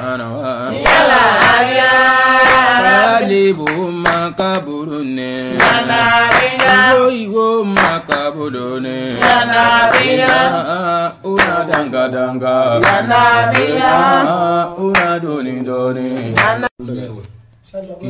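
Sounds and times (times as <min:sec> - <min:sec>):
devotional chanting: 0:00.0 - 0:16.7.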